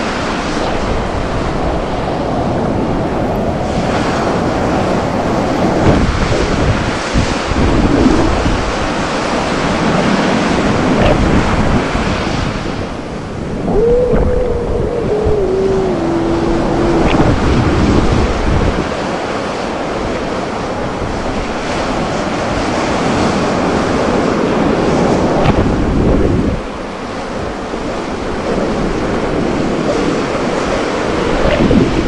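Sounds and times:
ocean surf breaking: 0.0s - 32.0s
wind buffeting microphone: 0.0s - 32.0s
faint falling pitched tone: 13.7s - 18.3s.

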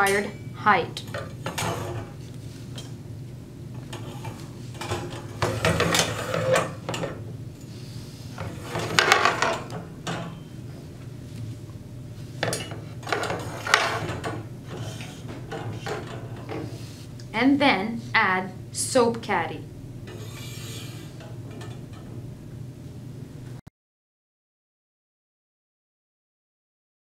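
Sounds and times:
metal baskets clanking on pole: 8.5s - 10.5s.

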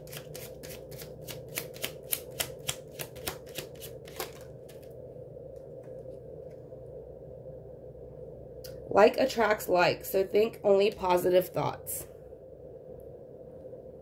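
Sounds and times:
cards being shuffled: 0.0s - 4.9s.

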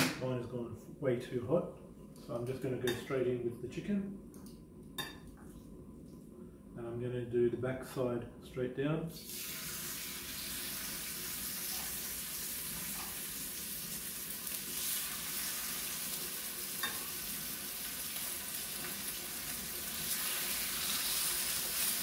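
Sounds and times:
chicken sizzling in hot oil: 9.2s - 22.0s.

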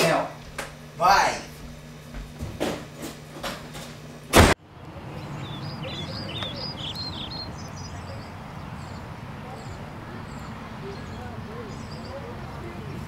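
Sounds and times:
small birds chirping: 4.6s - 13.0s.

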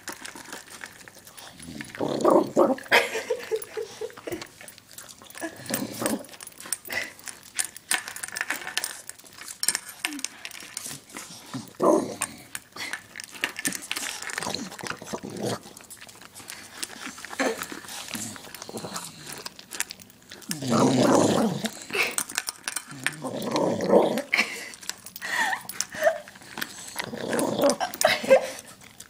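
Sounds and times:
dog eating from metal bowl: 0.0s - 29.0s
dog growling: 1.5s - 3.8s, 5.4s - 6.4s, 11.5s - 12.5s, 14.3s - 15.8s, 17.4s - 19.5s, 20.4s - 22.2s, 22.8s - 24.7s, 26.0s - 28.5s.

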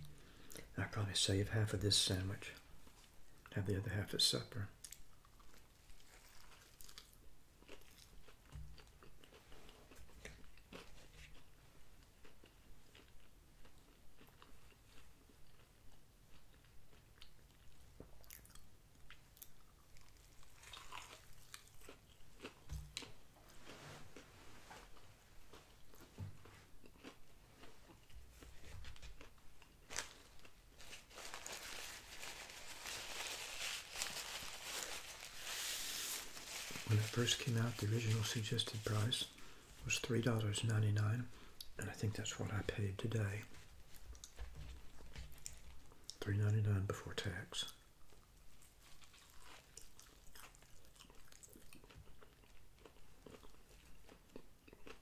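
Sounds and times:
biting and chewing food: 4.8s - 39.5s, 48.0s - 55.0s
crunching fried chicken: 12.2s - 23.2s, 47.6s - 55.0s
paper napkin rustling: 29.9s - 39.4s.

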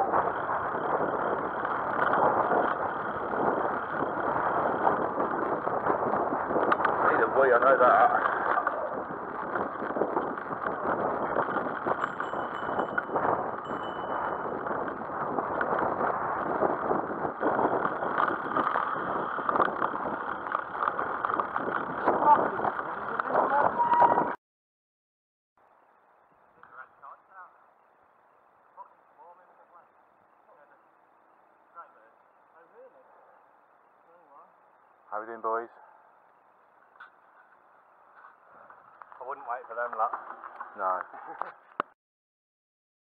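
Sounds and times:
bicycle tyre road noise: 0.0s - 24.4s, 25.6s - 41.9s
wind on microphone: 0.0s - 24.4s.

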